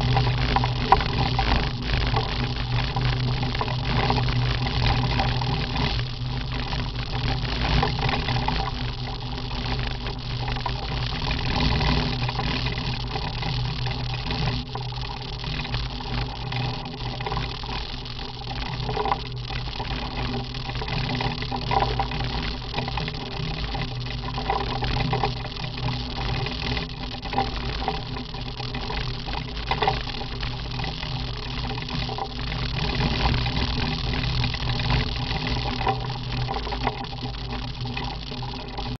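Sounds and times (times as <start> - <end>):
motorcycle engine drone: 0.0 - 16.2.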